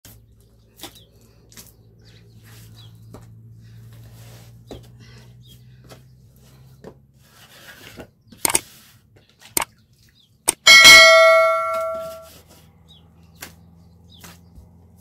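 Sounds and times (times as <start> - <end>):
mouse clicks: 8.4 - 8.6
bell chime: 10.7 - 12.3.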